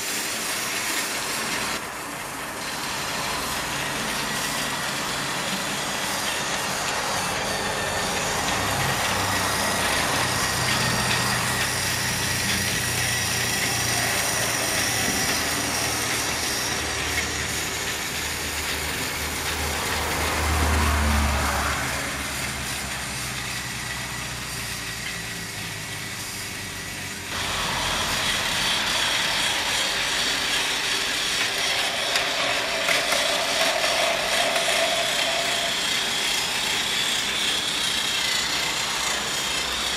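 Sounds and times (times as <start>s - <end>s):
toy train motor whir: 0.0s - 39.9s
toy train wheels rattling: 0.0s - 39.9s.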